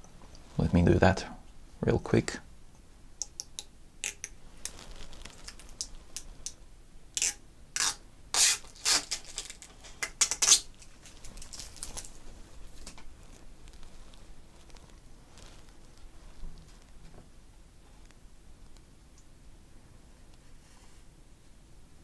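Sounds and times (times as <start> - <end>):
plastic film peeling rips: 4.0 - 6.6, 7.2 - 13.1
light scratching and handling: 4.1 - 6.4, 8.7 - 18.9.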